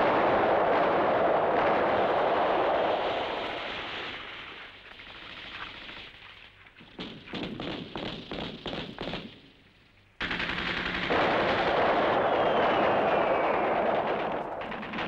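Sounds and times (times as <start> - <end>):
rapid gunfire: 7.0 - 9.4, 10.2 - 15.0
gunshots: 10.2 - 15.0
explosions: 11.1 - 15.0.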